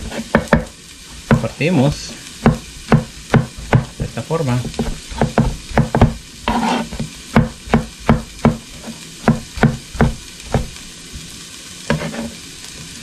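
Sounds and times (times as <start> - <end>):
knife chopping on cutting board: 0.0 - 1.5, 2.4 - 10.8, 11.9 - 12.3.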